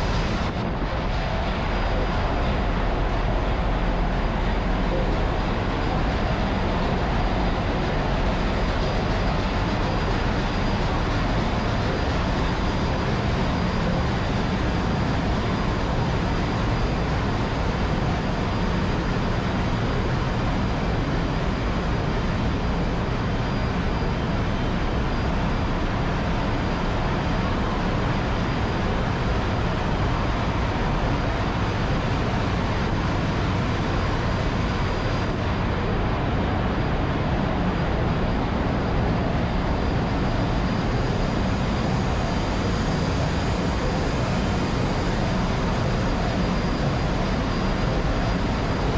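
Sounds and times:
faint high whine: 0:00.0 - 0:48.9.

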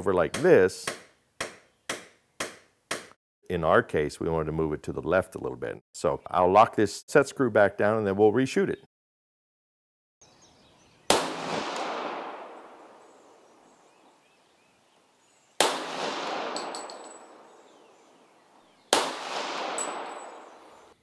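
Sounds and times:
pistol shots echoing: 0:11.1 - 0:13.2, 0:15.6 - 0:18.0, 0:18.9 - 0:21.0.

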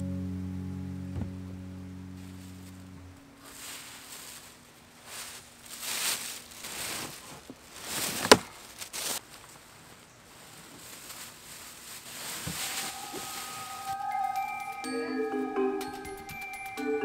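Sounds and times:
plastic bag rustling and crinkling: 0:03.3 - 0:14.0.

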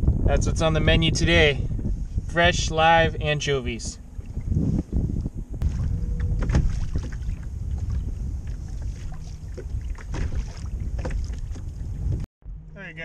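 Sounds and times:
wind rumble on microphone: 0:00.0 - 0:13.0
water lapping against kayak hull: 0:04.1 - 0:12.2
small splashes and knocks: 0:05.6 - 0:11.8.

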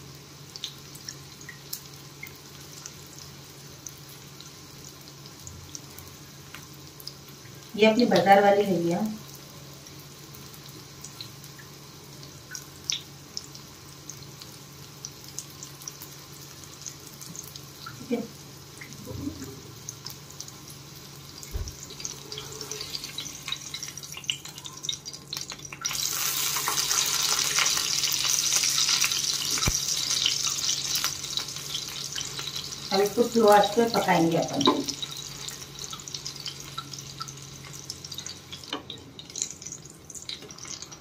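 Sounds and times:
low steady hum: 0:00.0 - 0:26.4
food sizzling in hot oil: 0:00.0 - 0:41.0.

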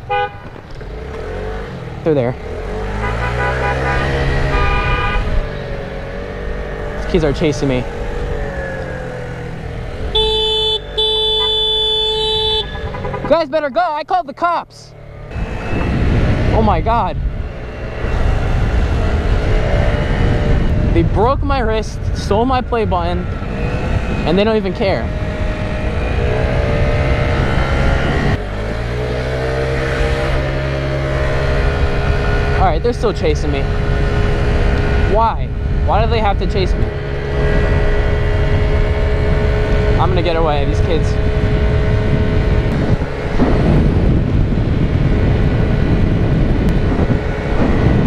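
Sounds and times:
scooter engine hum: 0:00.0 - 0:48.0
motor scooter engine: 0:00.1 - 0:07.0, 0:07.6 - 0:13.3
wind buffeting microphone: 0:15.1 - 0:48.0.

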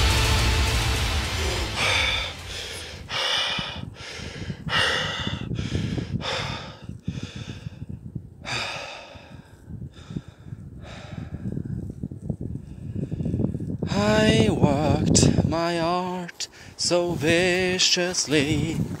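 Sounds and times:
person panting heavily: 0:01.2 - 0:11.7.

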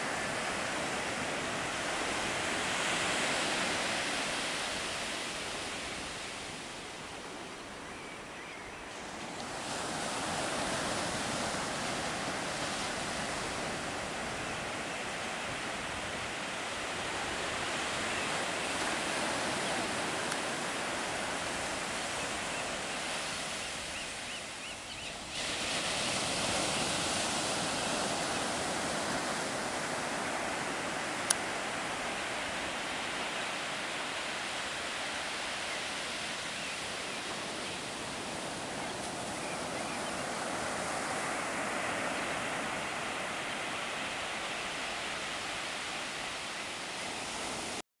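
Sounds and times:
ocean surf breaking: 0:25.3 - 0:46.4.

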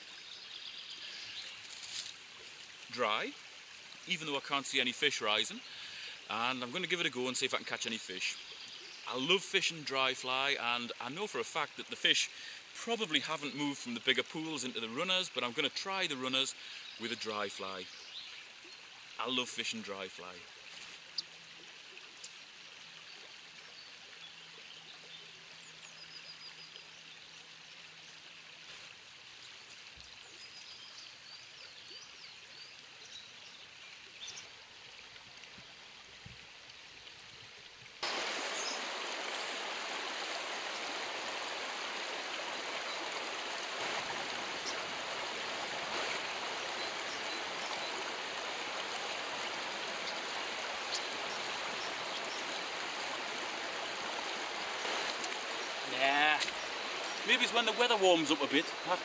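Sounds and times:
river rushing over stones: 0:38.0 - 0:59.0.

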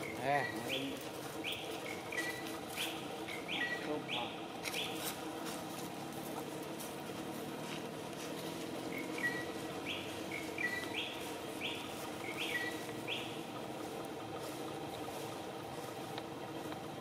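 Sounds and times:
bird calling sharp high notes: 0:00.0 - 0:05.1, 0:08.9 - 0:13.4.

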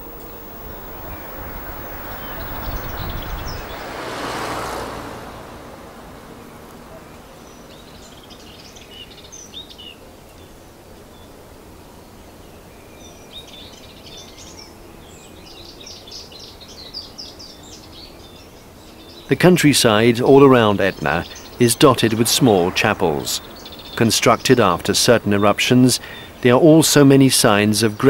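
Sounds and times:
small birds chirping: 0:00.0 - 0:04.0, 0:15.5 - 0:26.4
low steady background noise: 0:00.0 - 0:04.1, 0:04.9 - 0:28.0
brief rush of noise: 0:21.2 - 0:24.7.

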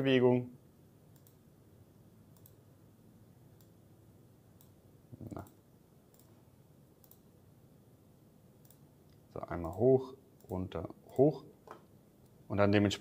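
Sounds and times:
faint computer mouse clicks: 0:01.1 - 0:01.4, 0:02.3 - 0:02.6, 0:03.6 - 0:03.8, 0:04.6 - 0:06.4, 0:07.0 - 0:07.3, 0:08.6 - 0:12.4.

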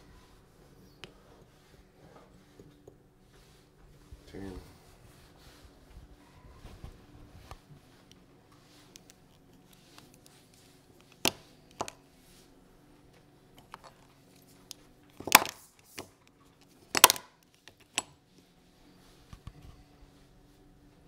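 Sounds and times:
plastic cases clicking and clacking: 0:15.1 - 0:18.1.

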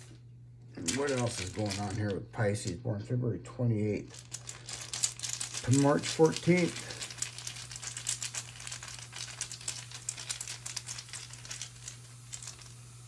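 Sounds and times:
stones clicking together: 0:04.1 - 0:12.8.

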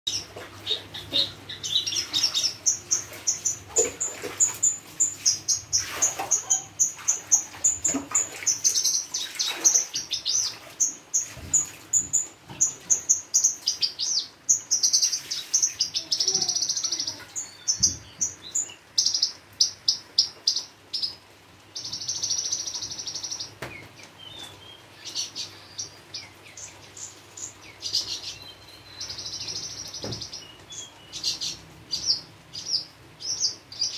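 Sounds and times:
buzzy rattling bird calls: 0:00.1 - 0:18.3
bird singing chirps and trills: 0:00.1 - 0:33.9.

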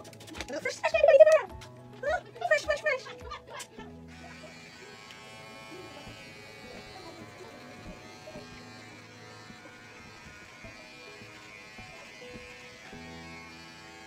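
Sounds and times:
electric hair clippers buzzing: 0:03.7 - 0:14.0.

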